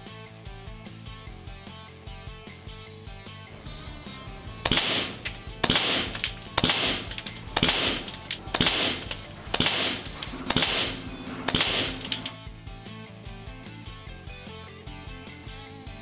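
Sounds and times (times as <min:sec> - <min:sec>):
background music: 0:00.0 - 0:16.0
air rifle shots: 0:04.6 - 0:12.4.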